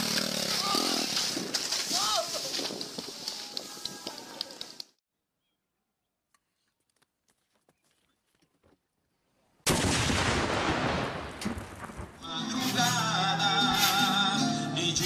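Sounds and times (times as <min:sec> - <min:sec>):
music: 0:12.2 - 0:15.0.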